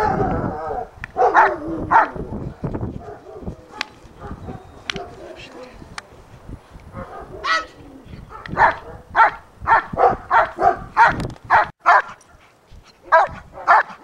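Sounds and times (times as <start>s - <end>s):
dog barking: 0.0s - 2.2s, 3.0s - 5.4s, 6.9s - 12.2s, 13.1s - 14.0s.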